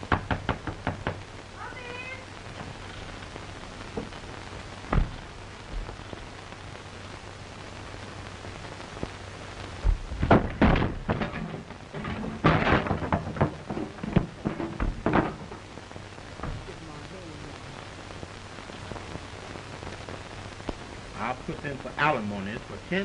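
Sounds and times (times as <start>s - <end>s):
old film soundtrack hiss: 0.0s - 23.0s
thud: 4.9s - 6.0s, 9.8s - 15.7s, 16.4s - 16.7s
crashes and bangs of a scuffle: 9.9s - 15.7s.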